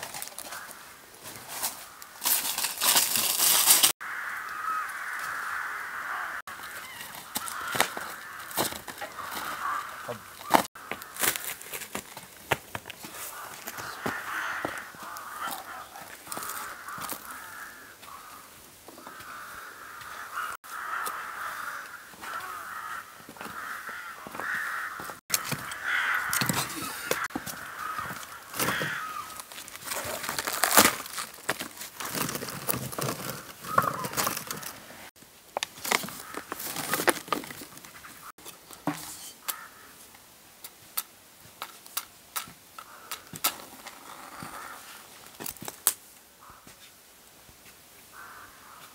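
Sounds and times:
birds calling with harsh cries: 4.0 - 11.5, 13.1 - 29.5, 33.6 - 34.7.

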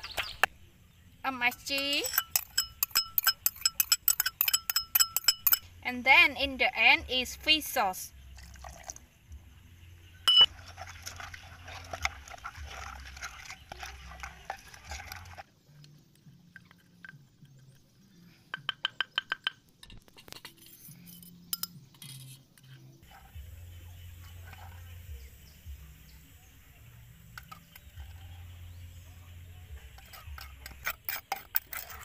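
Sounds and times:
spoon clinking ceramic bowl: 1.5 - 5.7, 10.3 - 10.5, 21.5 - 21.8.

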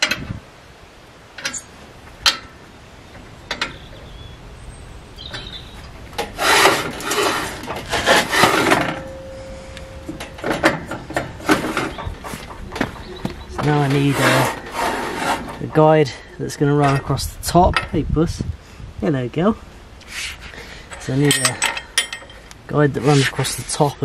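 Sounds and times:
steel parts scraping: 1.4 - 2.5, 5.4 - 12.4, 13.6 - 16.2, 20.0 - 23.9.

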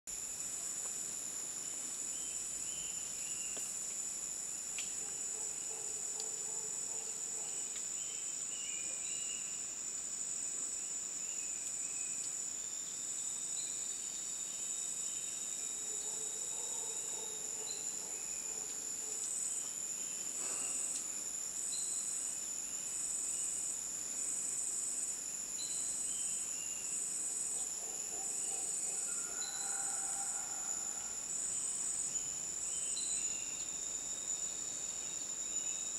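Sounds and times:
pulsing high insect call: 19.4 - 35.9.

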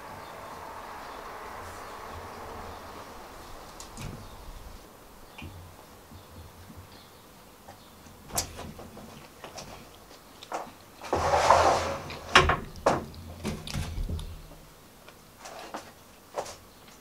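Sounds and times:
plate scraping on table: 11.0 - 12.5.

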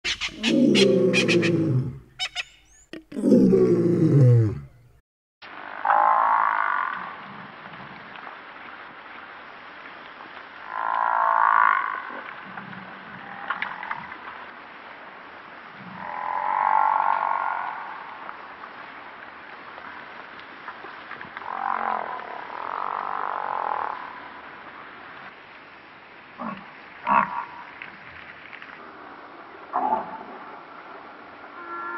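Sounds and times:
buffalo calling: 0.1 - 4.8, 31.6 - 31.9.

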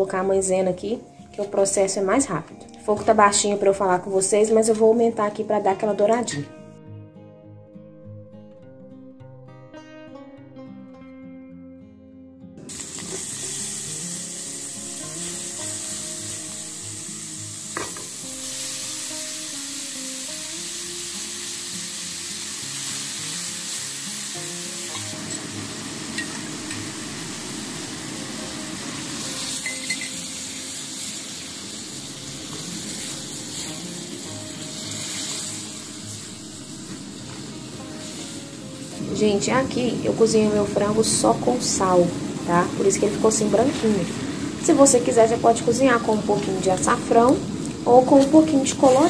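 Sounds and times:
seasoning sizzling in hot oil: 12.6 - 49.0
chicken frying in pan: 12.7 - 39.4.

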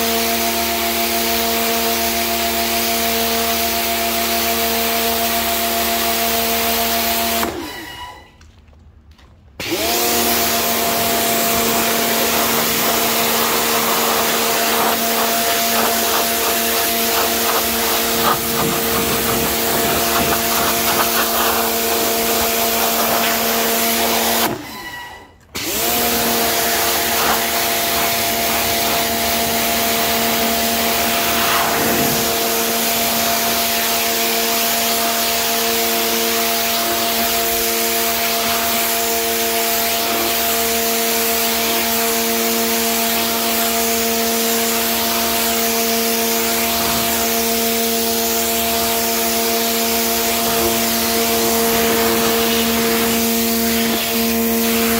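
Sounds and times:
pressure washer motor hum: 0.0 - 7.8, 9.6 - 54.9
water jet hissing on concrete: 9.9 - 24.6, 25.7 - 54.9.

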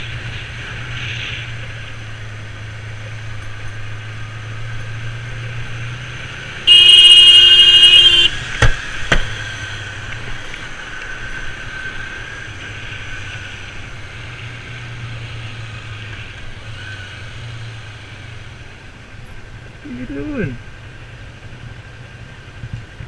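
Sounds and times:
wind and road noise: 0.0 - 23.0.

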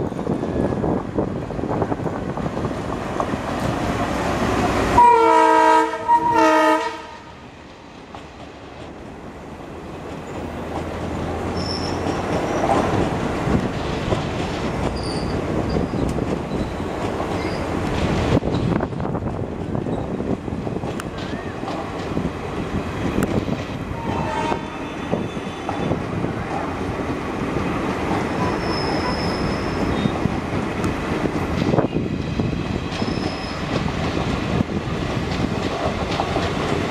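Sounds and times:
diesel locomotive passing: 0.0 - 36.9
train air horn blasts: 4.9 - 7.3, 24.0 - 26.0
train wheels clattering: 7.8 - 36.9.

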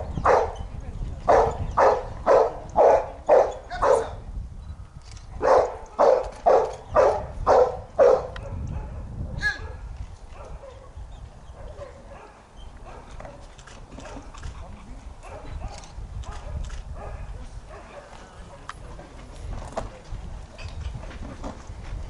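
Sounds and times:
dog barking: 0.2 - 0.6, 1.3 - 4.2, 5.4 - 11.0, 11.6 - 13.4, 15.2 - 18.7.

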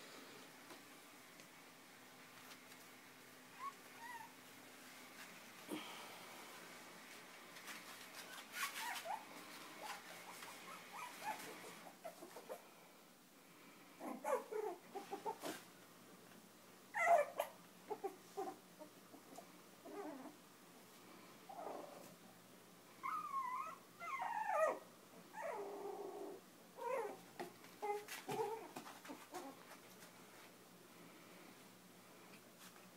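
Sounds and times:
puppies whimpering and squeaking: 3.5 - 4.4, 8.2 - 12.6, 17.0 - 18.6, 23.0 - 24.8.

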